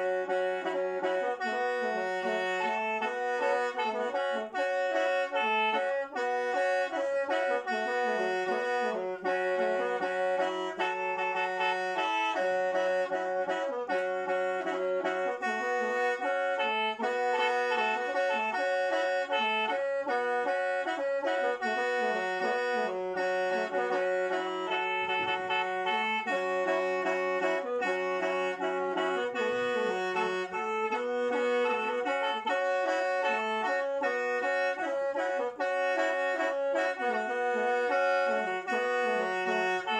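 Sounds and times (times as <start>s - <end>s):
mouth organ melody over drone: 19.3s - 39.9s.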